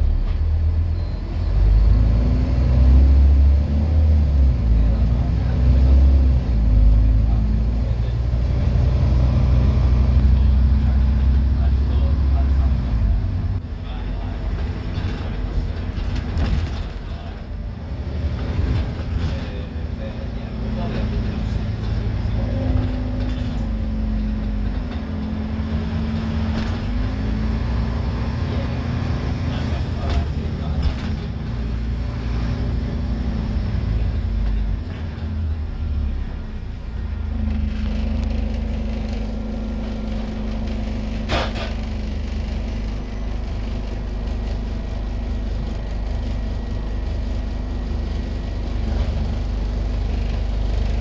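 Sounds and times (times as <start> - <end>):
bus diesel engine droning: 0.0 - 51.0
moving bus running noise: 0.0 - 51.0.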